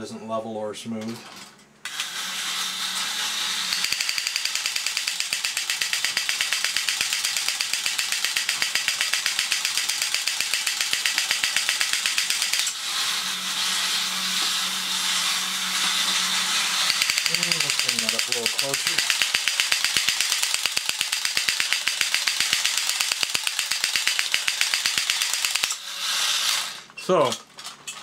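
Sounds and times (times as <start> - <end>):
toy motor and gears whirring: 1.8 - 28.0
fast mechanical clicking: 1.9 - 12.8, 16.8 - 28.0.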